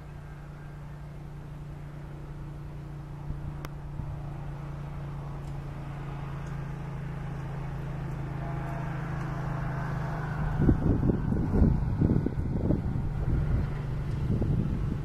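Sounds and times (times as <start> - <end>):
diesel locomotive engine drone: 0.0 - 15.0
faint sharp ticks: 6.4 - 6.6.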